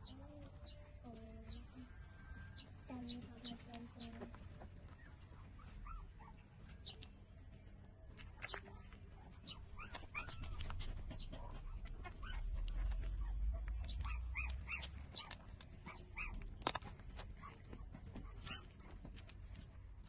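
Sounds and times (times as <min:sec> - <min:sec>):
puppies squeaking and whimpering: 0:04.0 - 0:07.2, 0:08.1 - 0:19.7
low rumble: 0:10.2 - 0:15.4.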